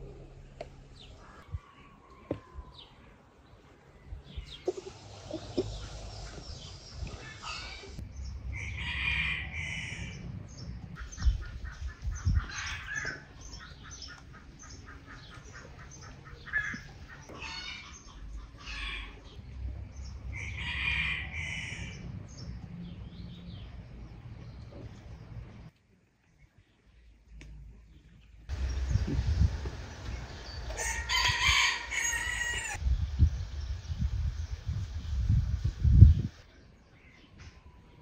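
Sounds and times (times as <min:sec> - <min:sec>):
chickens clucking: 0:04.5 - 0:08.0, 0:11.0 - 0:19.4
rooster crowing: 0:08.6 - 0:10.1, 0:20.4 - 0:22.0, 0:30.7 - 0:32.8.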